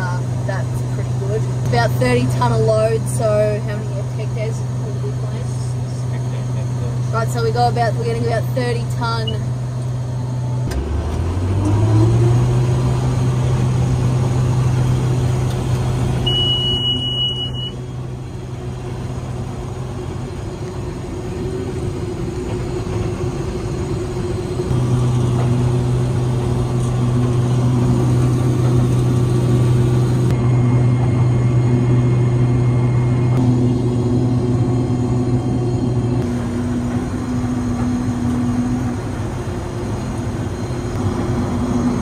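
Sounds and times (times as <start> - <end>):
combine harvester engine drone: 0.0 - 42.0.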